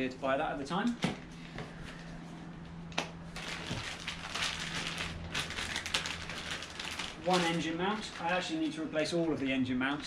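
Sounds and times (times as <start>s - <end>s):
packaging crinkling and rustling: 3.3s - 10.0s.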